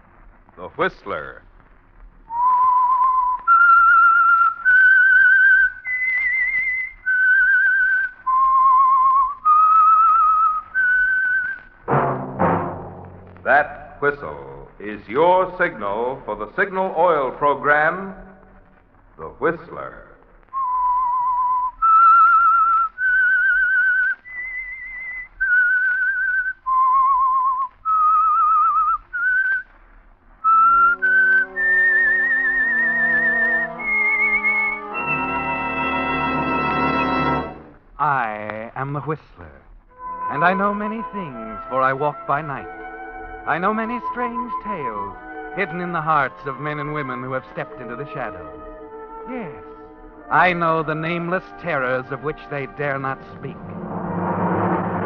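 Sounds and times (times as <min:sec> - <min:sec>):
person whistling slow tune: 0:02.3 - 0:11.7, 0:20.5 - 0:29.7, 0:30.4 - 0:36.4
orchestra sustained chords: 0:48.6 - 0:55.0.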